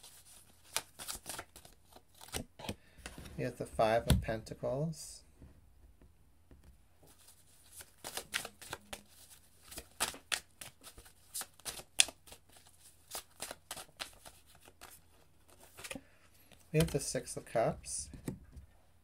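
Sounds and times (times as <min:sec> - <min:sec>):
cards being shuffled by hand: 0:00.0 - 0:03.3, 0:07.1 - 0:17.4.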